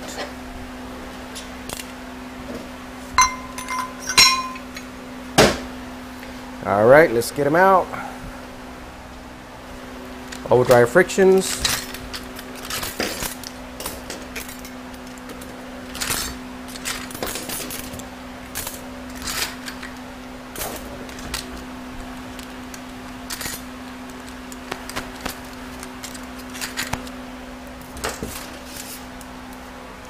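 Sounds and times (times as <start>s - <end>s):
steady low hum: 2.0s - 13.8s
metal clutch plates clinking: 3.2s - 4.8s.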